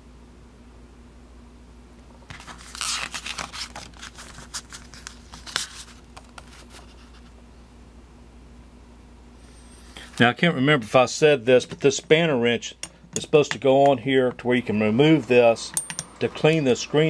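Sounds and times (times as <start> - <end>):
paper pages rustling: 2.3 - 7.3.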